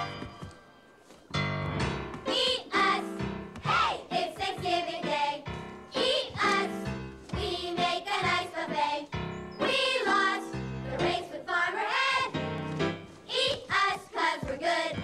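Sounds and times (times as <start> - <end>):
instrumental accompaniment: 0.0 - 11.2
children's chorus singing: 2.2 - 12.4, 13.2 - 15.0.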